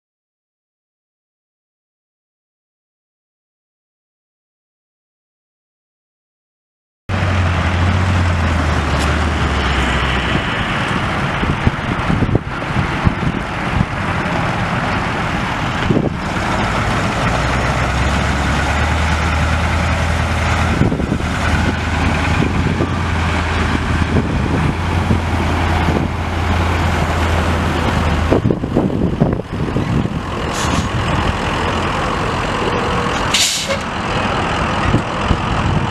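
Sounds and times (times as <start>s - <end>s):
diesel engine running: 7.1s - 35.9s
brief hiss: 33.3s - 33.8s.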